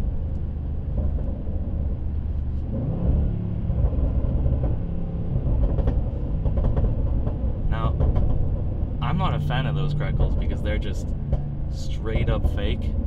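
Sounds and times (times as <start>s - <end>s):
car engine rumble under throttle: 0.0s - 13.0s
exhaust crackles: 0.0s - 13.0s
man talking: 7.7s - 8.0s, 9.0s - 11.0s, 11.7s - 13.0s.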